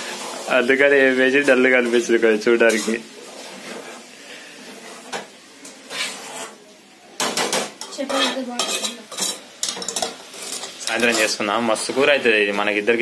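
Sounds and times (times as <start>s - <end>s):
curry simmering hiss: 0.0s - 13.0s
metal spoon scraping a pot: 1.8s - 6.6s, 7.5s - 12.1s.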